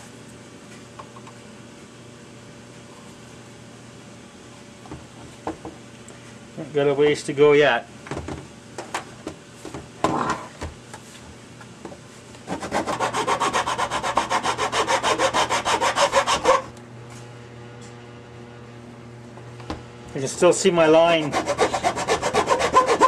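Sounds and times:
file rasping on plastic: 0:12.5 - 0:16.7, 0:21.1 - 0:23.0.

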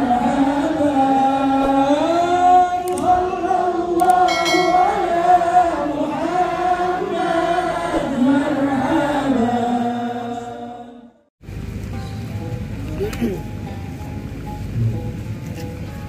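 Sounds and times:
voices chanting in unison: 0:00.0 - 0:11.3.

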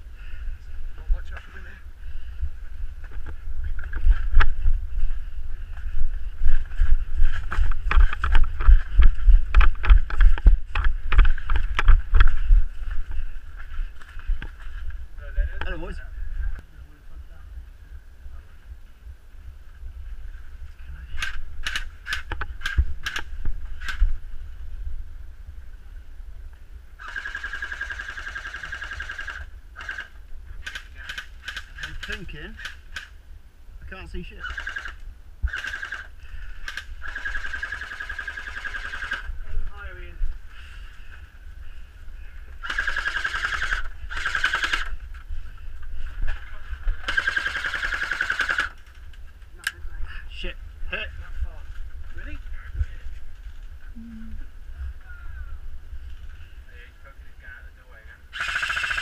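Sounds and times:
low rumble of wind: 0:00.0 - 0:58.5
full-auto airsoft burst: 0:27.0 - 0:30.1, 0:34.4 - 0:36.1, 0:37.0 - 0:39.3, 0:42.6 - 0:45.0, 0:47.0 - 0:48.8, 0:58.3 - 0:59.0.

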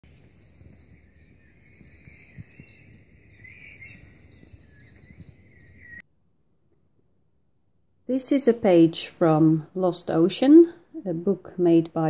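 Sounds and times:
small songbirds singing: 0:00.0 - 0:06.0.

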